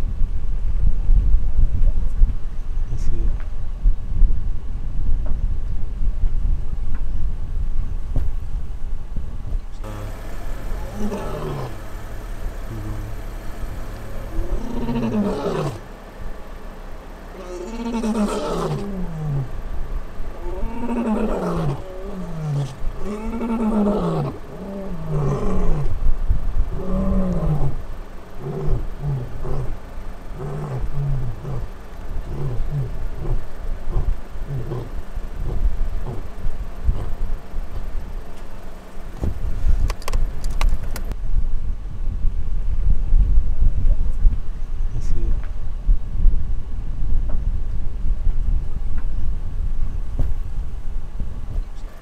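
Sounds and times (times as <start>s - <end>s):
lion grunting: 9.8s - 16.0s, 17.3s - 19.7s, 20.3s - 26.0s, 26.7s - 37.2s
lion roaring: 9.8s - 16.0s, 17.3s - 19.7s, 20.3s - 26.0s, 26.7s - 37.2s.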